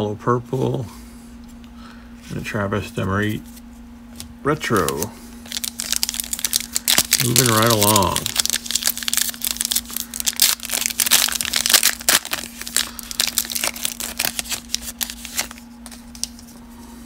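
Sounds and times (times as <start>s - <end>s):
foil wrapper tearing and crinkling: 4.7s - 16.5s.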